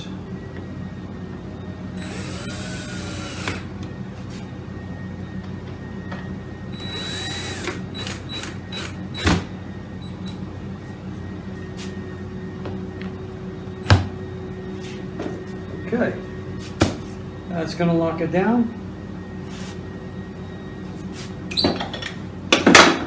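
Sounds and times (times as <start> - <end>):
steady low hum: 0.0 - 23.0
cordless drill driving screws: 2.0 - 3.6.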